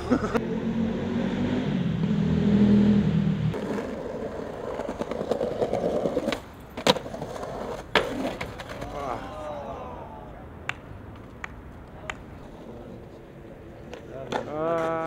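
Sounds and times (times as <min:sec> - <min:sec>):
vehicle engine humming: 0:00.0 - 0:04.4
skateboard wheels rolling on pavement: 0:01.4 - 0:15.0
skateboard clacks: 0:03.6 - 0:09.1, 0:10.6 - 0:15.0.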